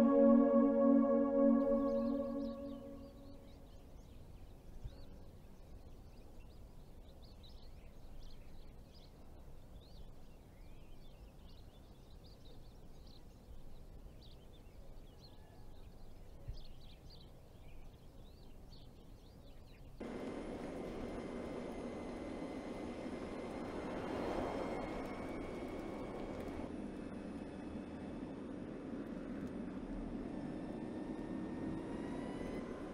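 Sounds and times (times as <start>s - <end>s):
low steady rumble: 0.0s - 3.5s, 20.0s - 29.1s.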